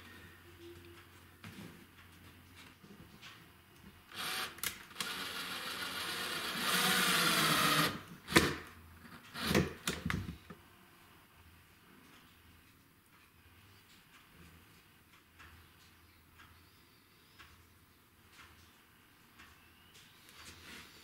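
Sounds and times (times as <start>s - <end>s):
electric drill into wood: 4.1s - 8.6s, 9.4s - 9.7s.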